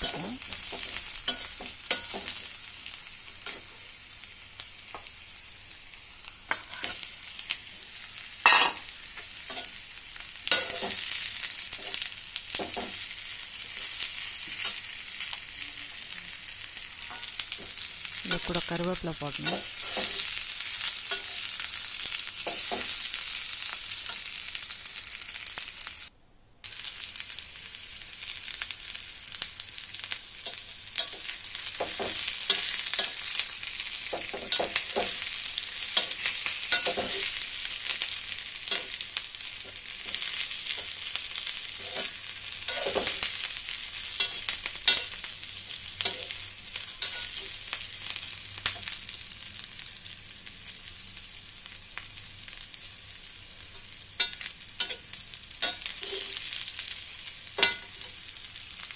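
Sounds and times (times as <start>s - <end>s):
vegetables sizzling in oil: 0.0s - 58.9s
metal spatula scraping pan: 19.4s - 21.7s.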